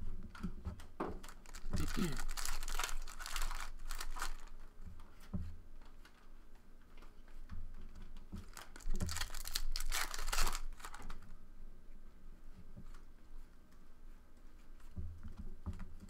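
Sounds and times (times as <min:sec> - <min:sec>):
foil wrapper tearing and crinkling: 0:01.2 - 0:04.6, 0:08.4 - 0:11.2.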